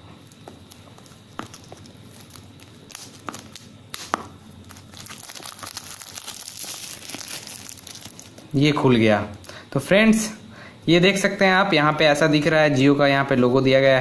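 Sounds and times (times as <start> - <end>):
plastic shrink-wrap crinkling: 0.7 - 3.7, 4.6 - 8.5.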